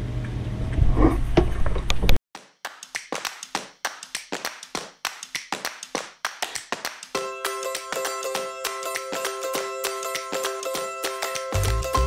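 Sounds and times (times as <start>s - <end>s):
music beat of claps and taps: 2.4s - 12.0s.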